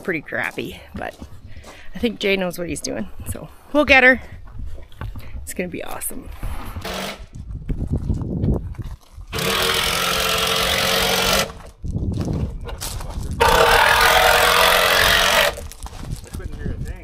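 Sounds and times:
power tool running: 0:06.8 - 0:07.2, 0:09.3 - 0:11.7, 0:13.4 - 0:15.6.

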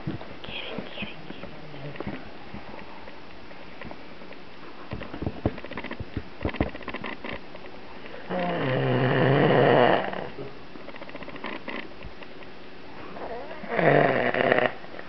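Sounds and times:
soft clicks and rustles: 0:00.0 - 0:08.2, 0:10.8 - 0:12.6
man snoring: 0:08.3 - 0:10.4, 0:13.3 - 0:14.8.

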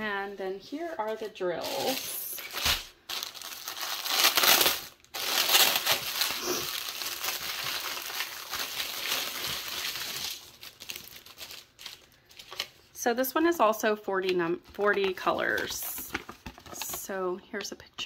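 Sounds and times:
plastic bag crinkling: 0:01.0 - 0:12.9, 0:14.7 - 0:17.2
small plastic packets shifting: 0:01.2 - 0:12.9, 0:14.2 - 0:17.2.

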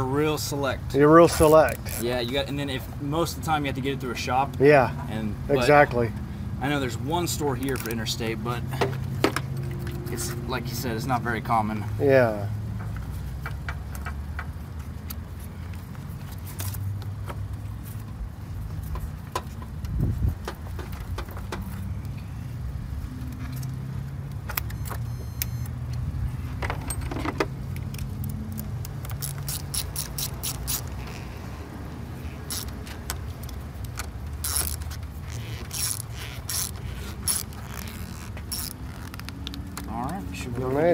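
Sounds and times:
metal clinks and rattles: 0:26.6 - 0:28.2
ratchet clicking: 0:28.2 - 0:31.0, 0:32.4 - 0:39.3.

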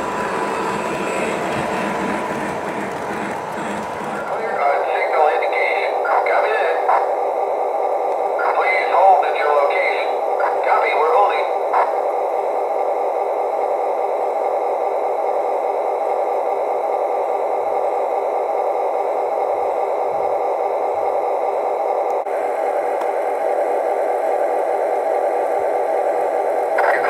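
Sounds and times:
wheels rolling on track: 0:00.0 - 0:04.6.

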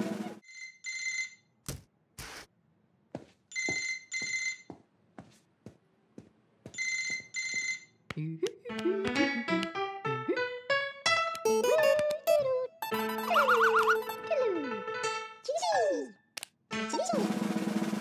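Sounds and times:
telephone ringing: 0:12.8 - 0:14.2.

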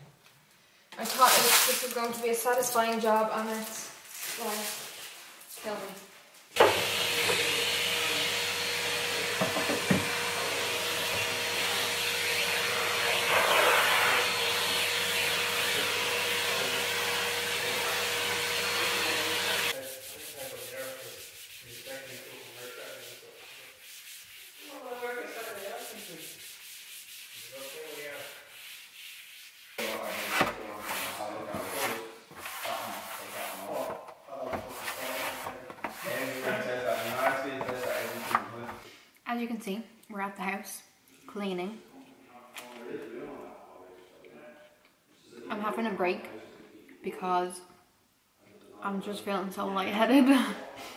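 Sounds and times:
vacuum cleaner running: 0:06.6 - 0:19.8
sponge scrubbing plastic: 0:17.7 - 0:38.8.

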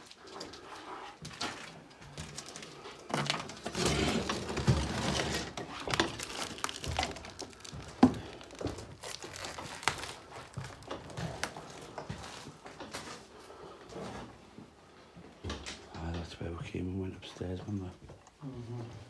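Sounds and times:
footsteps crunching on debris: 0:04.5 - 0:13.3.

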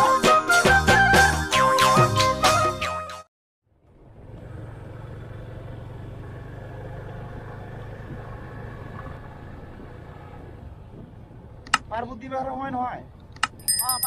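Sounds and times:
motorcycle engine running: 0:03.8 - 0:10.8.

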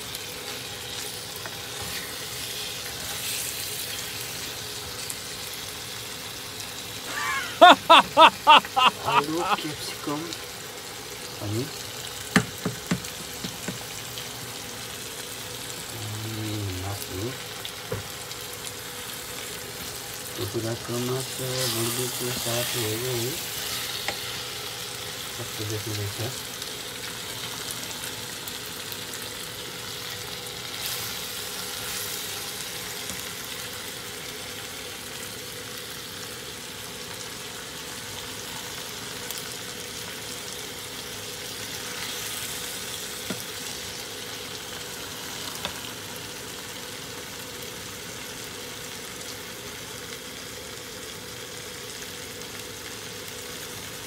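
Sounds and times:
curry sizzling in a pot: 0:00.0 - 0:54.0.

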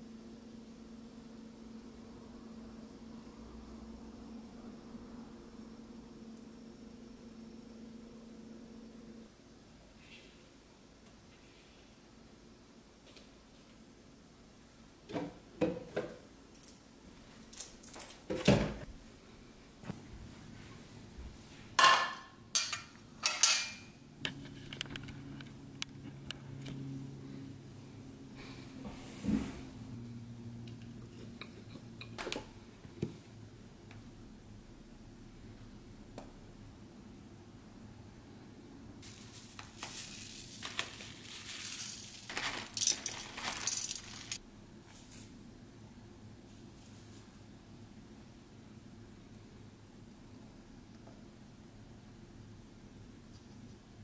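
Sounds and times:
low steady hum: 0:00.0 - 0:54.0
plate and fork clattering: 0:21.8 - 0:23.9
seed packets rustling: 0:39.0 - 0:44.4
seeds sprinkled onto plate: 0:39.0 - 0:45.3.

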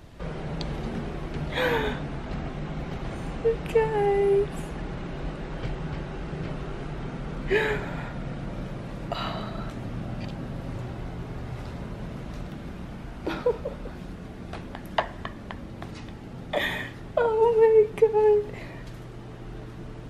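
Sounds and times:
low hum: 0:00.0 - 0:20.0
woman gasping: 0:01.5 - 0:02.1, 0:07.5 - 0:08.2, 0:16.5 - 0:17.1.

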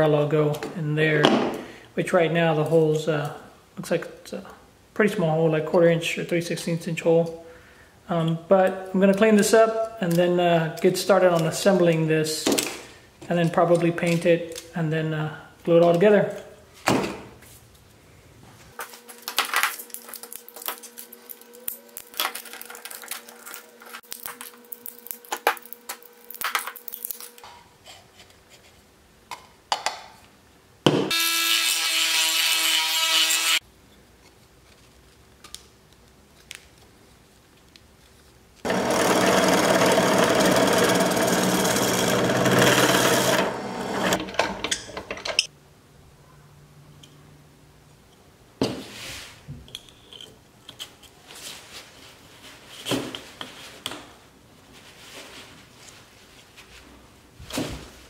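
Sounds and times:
plastic parts clicking and scraping: 0:19.3 - 0:27.4
rotary tool sanding plastic: 0:38.6 - 0:44.2.

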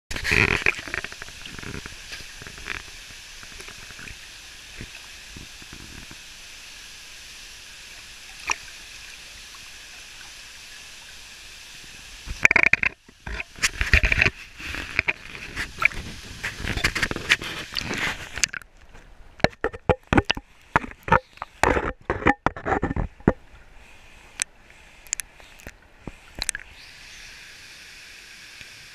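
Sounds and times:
water splashing over camera: 0:00.1 - 0:06.4, 0:08.0 - 0:18.8
waterfall rushing into pool: 0:00.2 - 0:18.5, 0:26.4 - 0:28.9.

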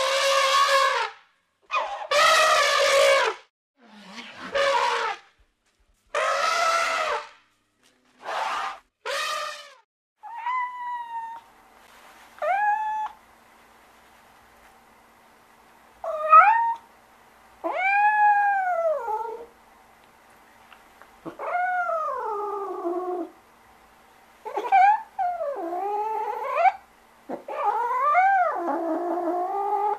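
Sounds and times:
elephant trumpeting: 0:00.0 - 0:01.1, 0:01.7 - 0:05.3, 0:06.1 - 0:07.4, 0:08.2 - 0:09.8
cat meowing: 0:09.3 - 0:11.5.

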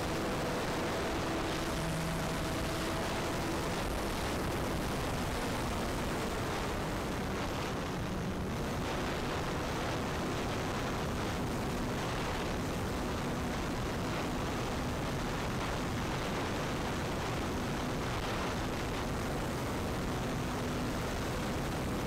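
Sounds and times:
electric motor and propeller humming: 0:00.0 - 0:12.4.

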